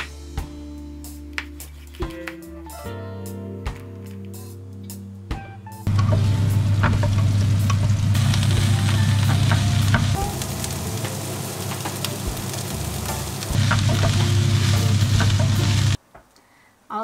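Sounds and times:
low steady hum: 0:05.9 - 0:11.0
vegetables sizzling in a pan: 0:05.9 - 0:16.0.

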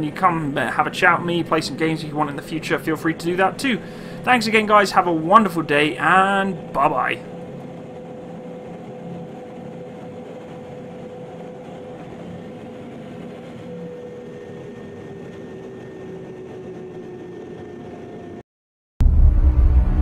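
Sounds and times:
aircraft engine hum: 0:00.0 - 0:18.4.

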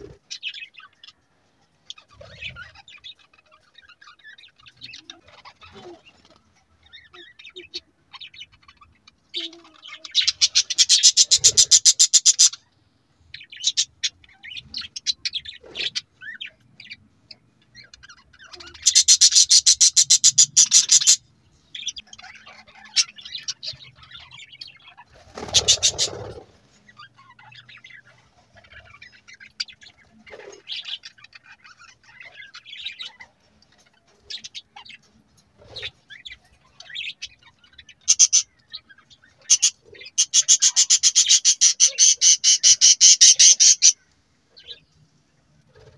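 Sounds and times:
budgerigars chirping and chattering: 0:00.0 - 0:45.0.

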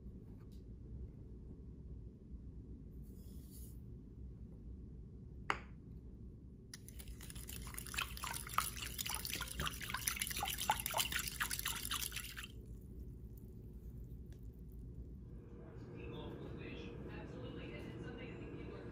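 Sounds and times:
liquid swishing: 0:06.8 - 0:15.0.

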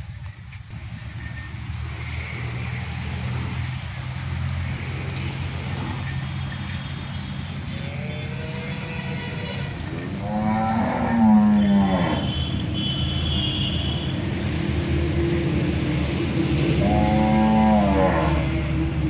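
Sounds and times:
cow mooing: 0:07.7 - 0:12.6, 0:16.7 - 0:18.8.

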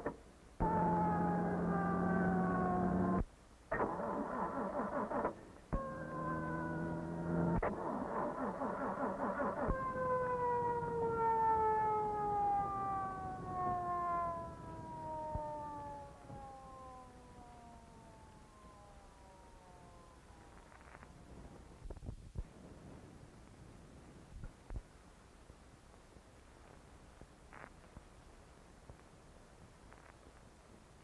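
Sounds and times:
car engine: 0:00.0 - 0:21.9
police siren wailing: 0:00.6 - 0:21.8.

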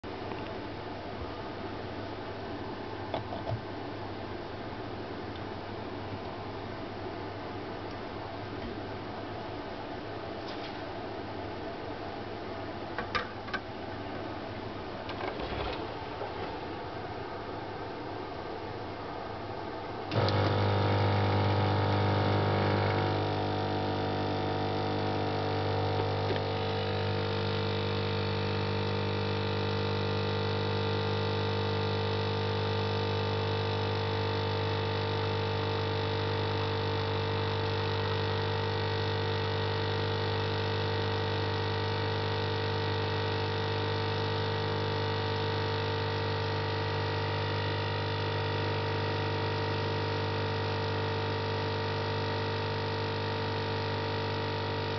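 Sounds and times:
espresso machine pump humming: 0:20.1 - 0:54.9.

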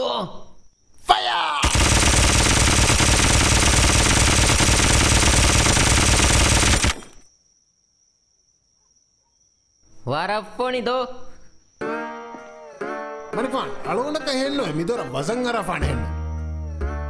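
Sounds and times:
automatic rifle fire: 0:01.6 - 0:07.3.

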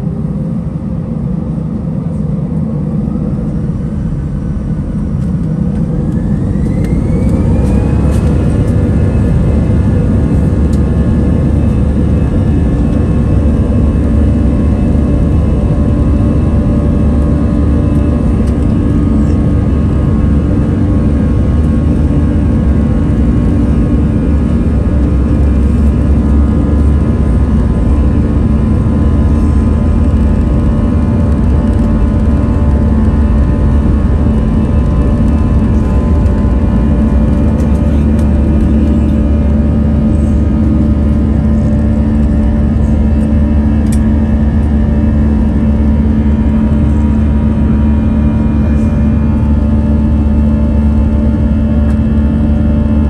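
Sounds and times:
jet engine whine: 0:00.0 - 0:53.0
loud rumble of aircraft rolling: 0:00.0 - 0:53.0.

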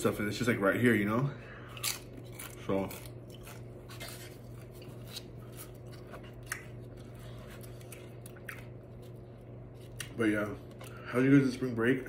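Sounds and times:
low electrical hum: 0:00.0 - 0:12.0
soft chewing: 0:01.6 - 0:11.0.

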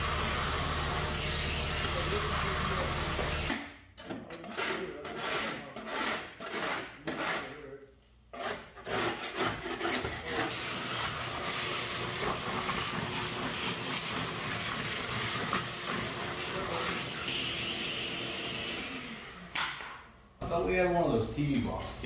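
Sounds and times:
shop vacuum running: 0:00.0 - 0:03.7, 0:10.4 - 0:22.0
hand scraper rasping on metal: 0:04.1 - 0:07.6, 0:08.3 - 0:11.2.

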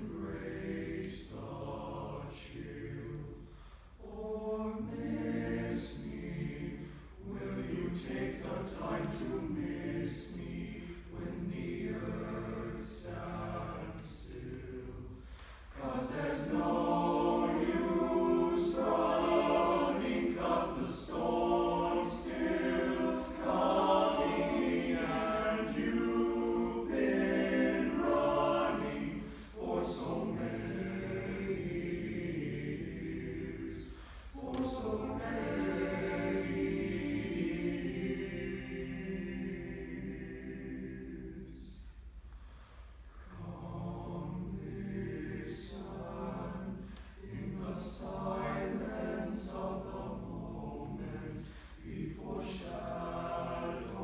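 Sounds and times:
boys' choir singing: 0:00.0 - 0:03.4, 0:04.0 - 0:41.8, 0:43.3 - 0:54.0.

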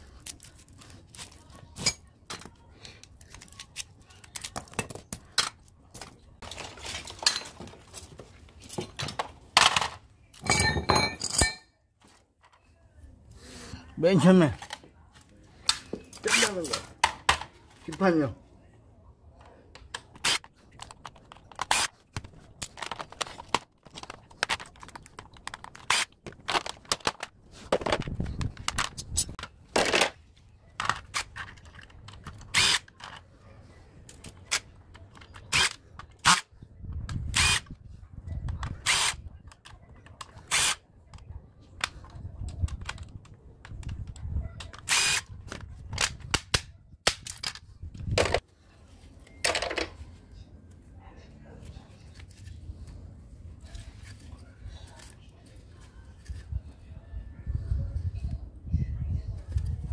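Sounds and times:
plastic parts and screws clattering: 0:00.1 - 0:12.7, 0:19.8 - 0:33.3, 0:34.0 - 0:37.8.

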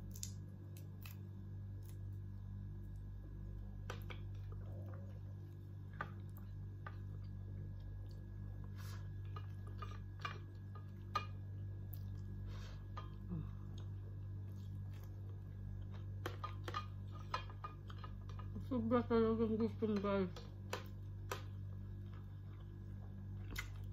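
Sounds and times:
steady low hum: 0:00.0 - 0:23.9
person chewing: 0:02.9 - 0:18.4, 0:20.8 - 0:23.9.

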